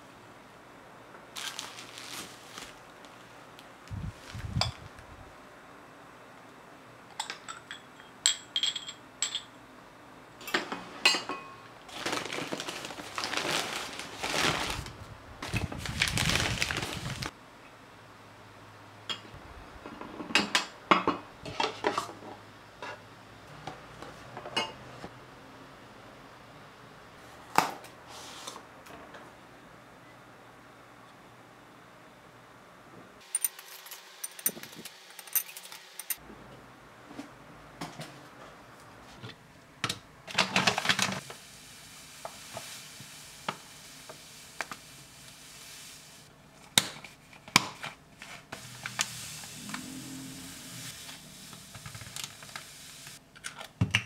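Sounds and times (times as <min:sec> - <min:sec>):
plastic packaging rustling: 0:01.3 - 0:05.0, 0:11.9 - 0:17.3, 0:40.3 - 0:41.3
glass and ceramic dishes clinking: 0:07.2 - 0:09.6, 0:11.0 - 0:11.6.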